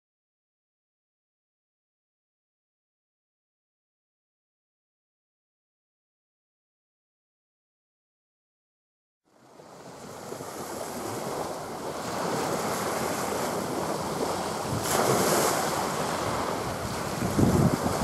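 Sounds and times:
waves washing on beach: 9.3 - 18.0
wind buffeting microphone: 9.6 - 18.0.

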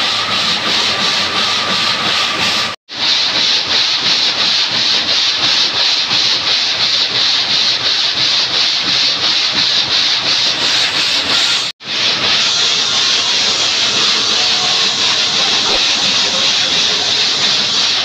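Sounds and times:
stone saw rasping: 10.1 - 18.0.

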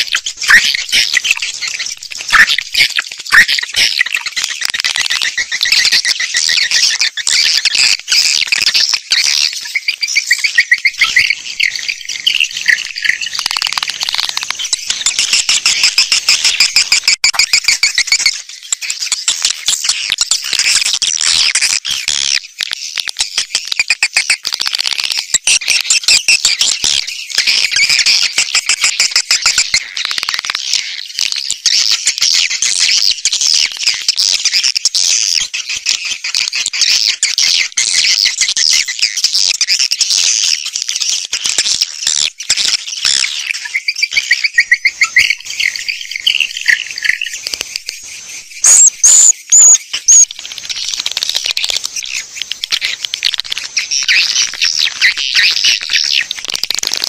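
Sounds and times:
swiftlet chirps from speakers: 44.6 - 56.4.

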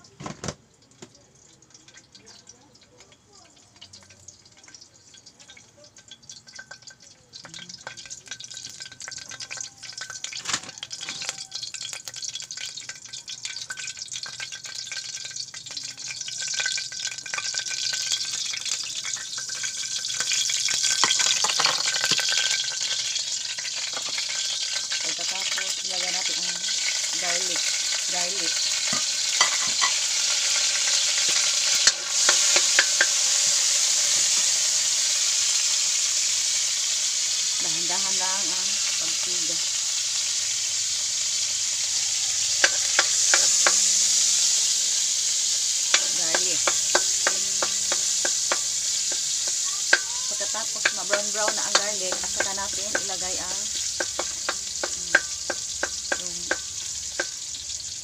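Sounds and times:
oil sizzling in a frying pan: 0.0 - 58.0.

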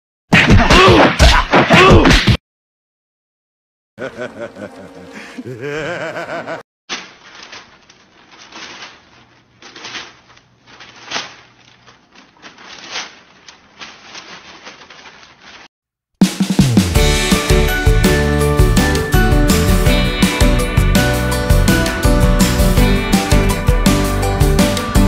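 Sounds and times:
newspaper rustling: 6.9 - 15.7.

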